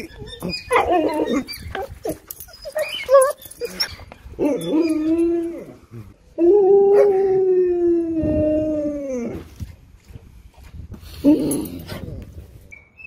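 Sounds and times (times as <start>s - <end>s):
husky howling: 0.0s - 9.5s.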